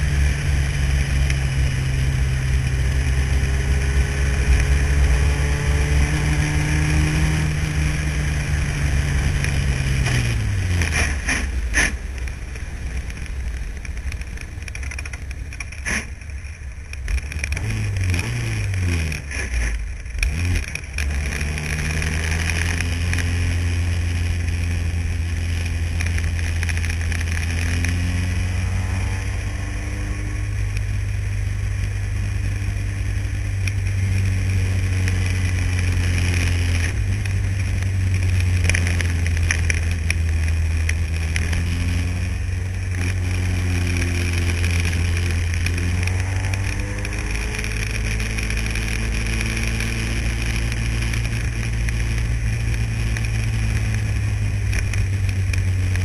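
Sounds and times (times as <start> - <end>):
racing car engine revving: 17.4 - 30.9, 33.9 - 56.0.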